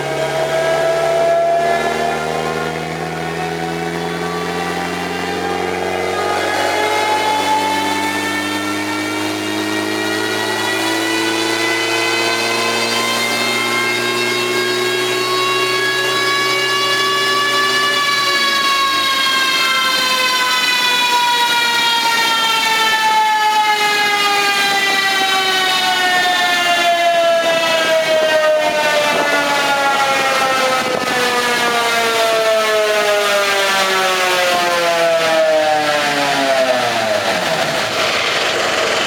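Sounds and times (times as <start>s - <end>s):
drivetrain whine falling in pitch: 0.0s - 22.5s
steady rushing noise: 36.8s - 39.0s.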